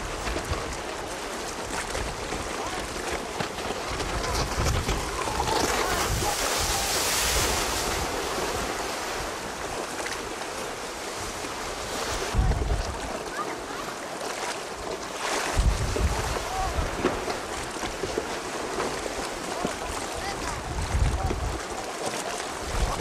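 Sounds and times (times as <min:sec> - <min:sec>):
wind buffeting microphone: 0:00.0 - 0:09.8, 0:11.2 - 0:13.2, 0:15.5 - 0:18.2, 0:19.0 - 0:21.8, 0:22.6 - 0:23.0
waves washing onto beach: 0:00.0 - 0:23.0.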